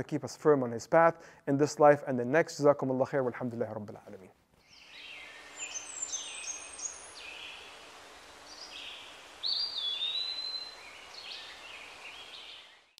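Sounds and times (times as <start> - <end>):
faint steady hiss: 0.0 - 13.0
loud bird whistle: 4.6 - 7.7, 8.5 - 12.9
birds chirping: 4.6 - 13.0.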